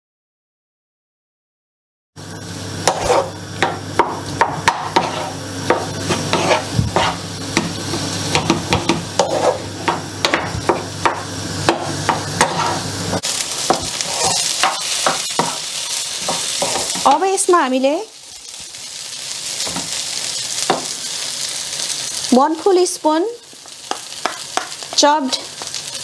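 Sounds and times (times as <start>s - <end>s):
faint sizzle: 2.2s - 26.0s
spatula knocking on pan: 2.9s - 12.7s, 13.7s - 13.9s, 14.6s - 15.6s, 16.2s - 17.1s, 20.7s - 20.9s, 23.8s - 25.1s.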